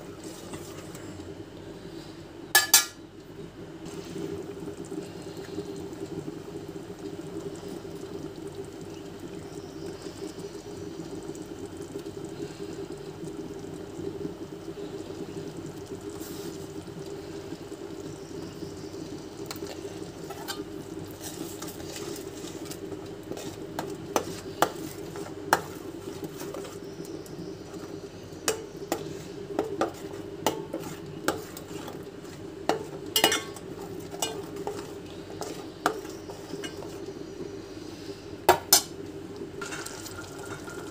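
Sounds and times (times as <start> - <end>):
steady hum: 17.1 - 39.7.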